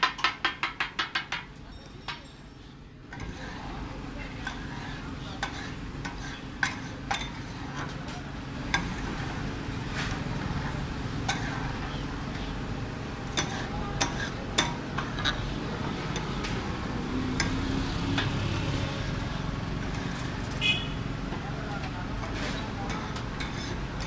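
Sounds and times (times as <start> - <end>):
metal spatulas scraping a griddle: 3.1 - 12.0, 13.2 - 16.6, 17.4 - 20.6, 22.2 - 24.0.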